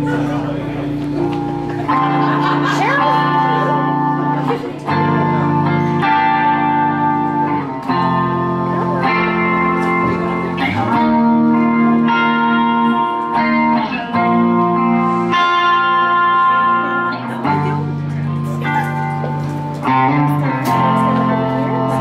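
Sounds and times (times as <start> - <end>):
electric guitar ringing chords: 0.0 - 22.0.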